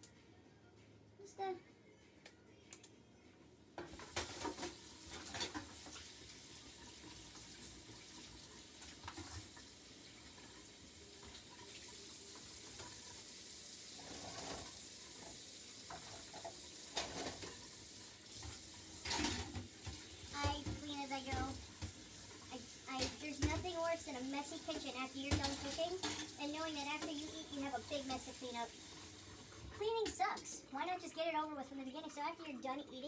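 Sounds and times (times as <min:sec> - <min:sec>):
faucet running into metal sink: 0:04.0 - 0:30.2
dishware clattering: 0:25.3 - 0:26.4.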